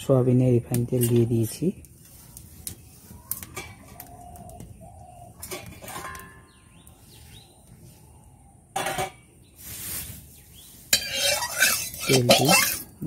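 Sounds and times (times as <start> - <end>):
loud utensil clatter: 5.4 - 6.4, 11.0 - 13.0
cooking utensils clinking: 5.4 - 6.5, 10.9 - 13.0.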